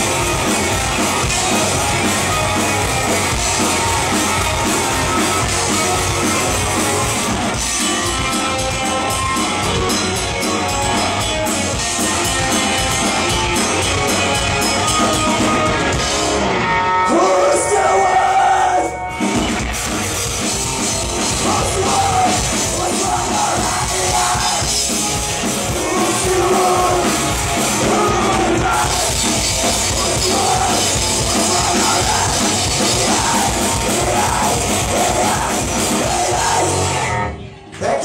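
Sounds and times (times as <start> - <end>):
live rock band playing: 0.0 - 38.0
singer yelling vocals: 17.0 - 19.0, 21.3 - 24.8, 25.7 - 37.0.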